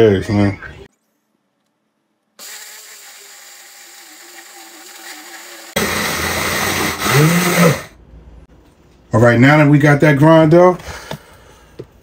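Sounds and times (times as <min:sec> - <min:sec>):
blender grinding kibble: 0:02.4 - 0:07.9.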